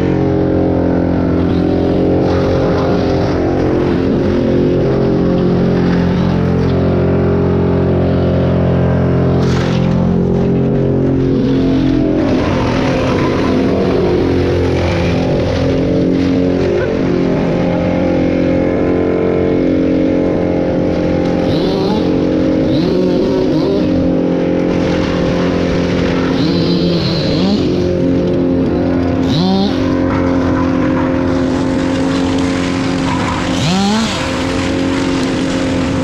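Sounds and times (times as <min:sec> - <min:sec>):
truck engine running under load: 0:00.0 - 0:36.0.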